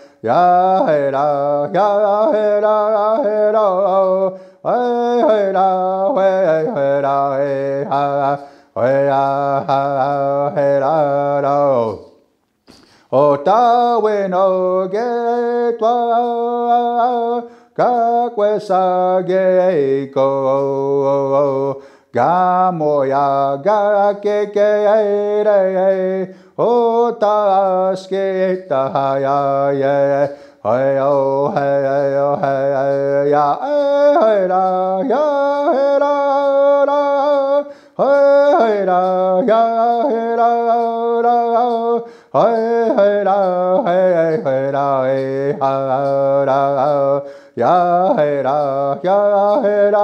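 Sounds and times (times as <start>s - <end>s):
man singing unaccompanied: 0.0s - 50.0s.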